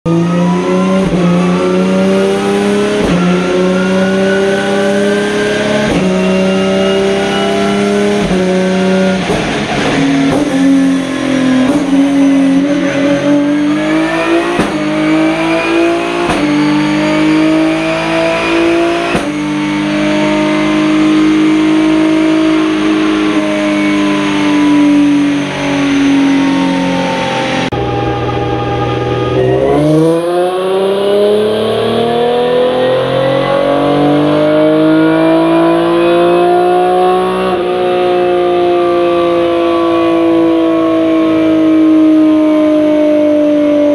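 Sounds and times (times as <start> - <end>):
race car engine revving through gears: 0.0 - 43.9.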